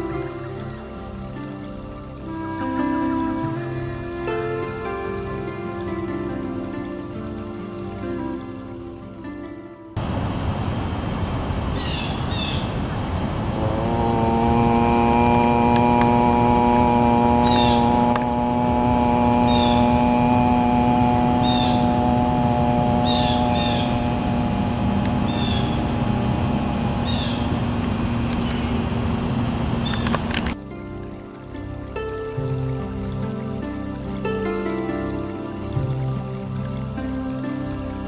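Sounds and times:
outdoor background noise: 0:00.0 - 0:38.0
bird chirping: 0:11.7 - 0:12.8, 0:17.4 - 0:18.1, 0:19.4 - 0:20.1, 0:21.4 - 0:22.0, 0:23.0 - 0:24.4, 0:25.2 - 0:25.9, 0:27.0 - 0:27.6
man humming a low note: 0:13.4 - 0:28.0.

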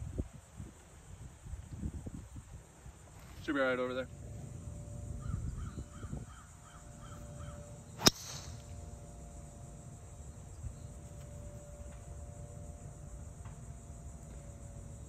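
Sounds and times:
bird calls: 0:05.1 - 0:08.4
golf driver striking ball: 0:08.0 - 0:08.7.

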